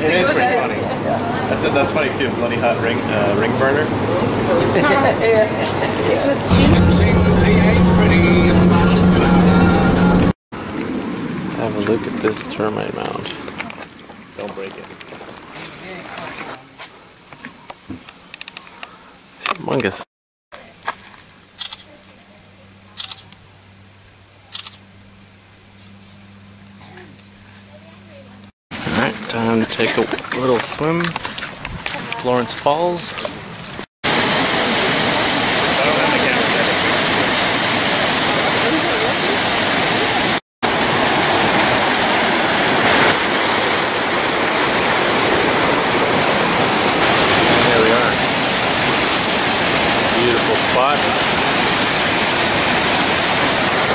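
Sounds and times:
recorder low hum: 6.5s - 10.4s
faint insect drone: 20.6s - 28.4s
water rushing over rocks: 34.1s - 53.9s.

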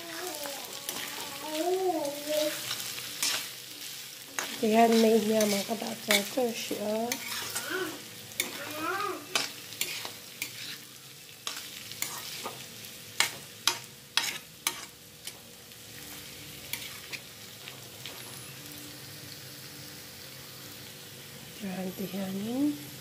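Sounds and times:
low sizzle: 0.0s - 23.0s
metal spatula scraping a pan: 0.8s - 1.4s, 2.3s - 12.6s, 13.2s - 15.4s, 16.7s - 17.3s.

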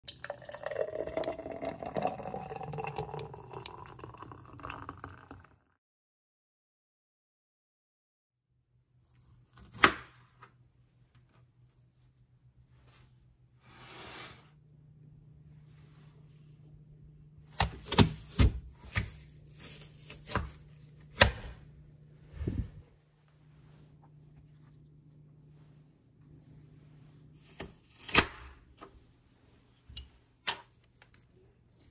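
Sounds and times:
juice pouring into glass jar: 0.0s - 5.7s.

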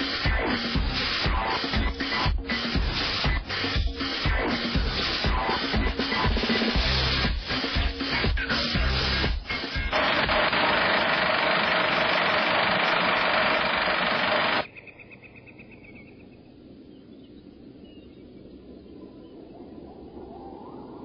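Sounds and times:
rushing and rattling noise: 0.0s - 14.6s
steady hum: 0.0s - 14.7s
faint background ambience: 0.0s - 21.0s.

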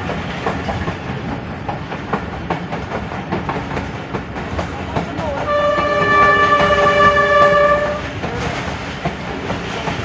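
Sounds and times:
train wheels rumbling on rails: 0.0s - 10.0s
locomotive horn blast: 5.5s - 8.1s.

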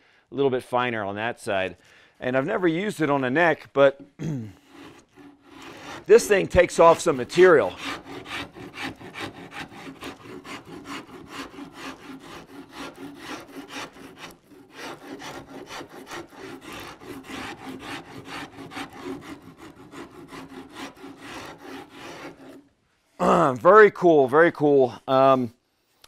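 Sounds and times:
rasp scraping wood: 3.9s - 22.7s.

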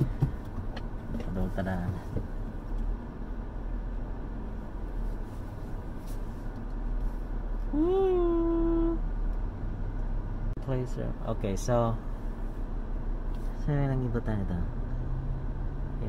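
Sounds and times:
car cabin rumble: 0.0s - 10.5s.

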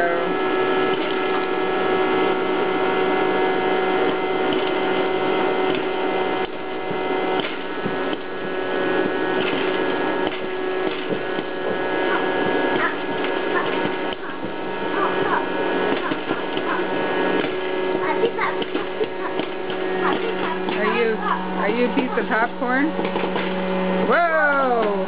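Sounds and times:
popcorn popper fan humming: 0.0s - 25.0s.

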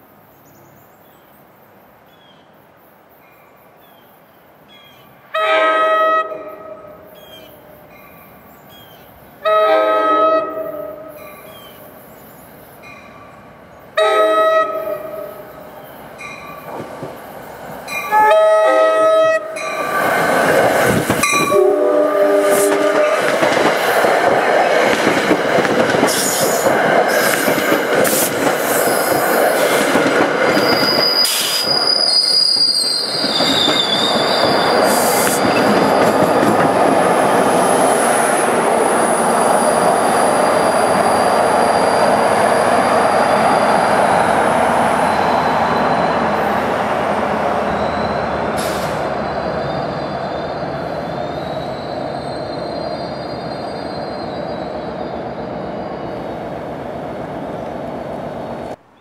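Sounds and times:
train horn blast: 5.3s - 7.8s, 9.4s - 11.2s, 14.0s - 15.6s, 18.0s - 19.8s, 21.2s - 23.3s
train wheels rumbling on rails: 15.6s - 58.8s
high wheel squeal: 30.5s - 36.4s, 38.8s - 44.1s, 44.8s - 46.6s, 47.6s - 56.3s.

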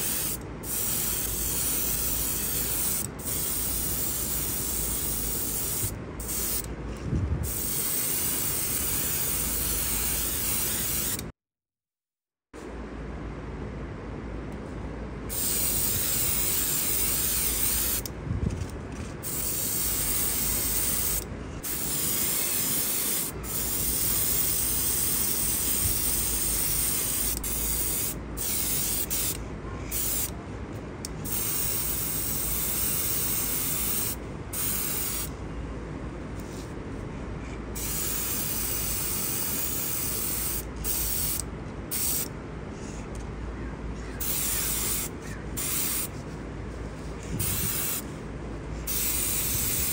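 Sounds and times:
spray paint can hissing: 0.0s - 6.7s, 7.4s - 11.3s, 15.3s - 18.1s, 19.2s - 30.3s, 31.2s - 35.3s, 37.8s - 42.3s, 44.2s - 46.1s, 47.4s - 48.1s, 48.9s - 49.9s.

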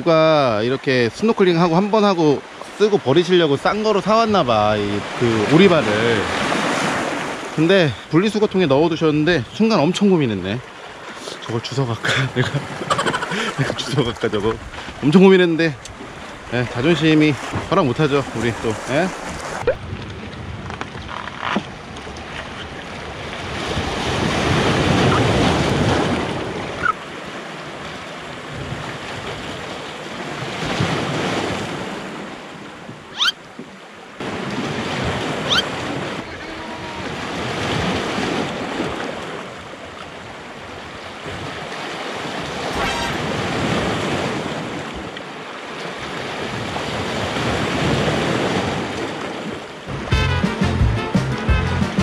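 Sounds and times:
waves breaking on rocky shore: 0.0s - 50.0s
high rising squeaks: 33.2s - 33.4s, 35.5s - 35.7s, 42.7s - 43.3s.

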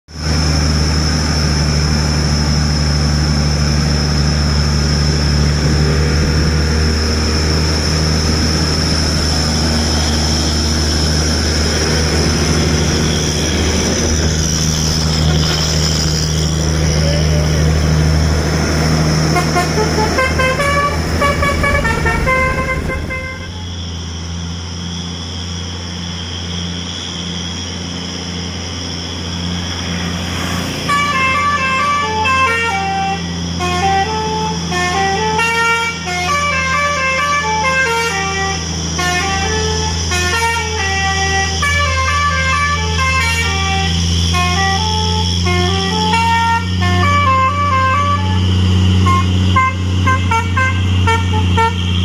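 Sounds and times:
truck engine droning: 0.0s - 52.0s
horn-like tune: 19.2s - 23.9s, 30.9s - 52.0s.

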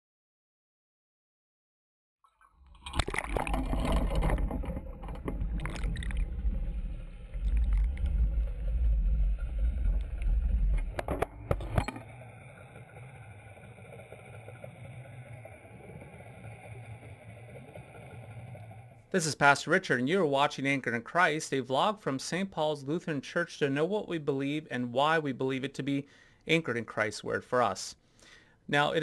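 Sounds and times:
underwater rumble and rushing water: 2.6s - 19.1s.

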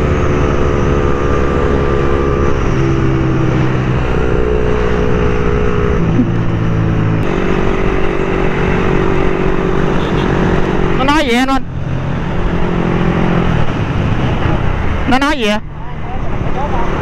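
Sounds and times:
wind and road noise: 0.0s - 17.0s
motorcycle engine running: 2.8s - 11.7s.

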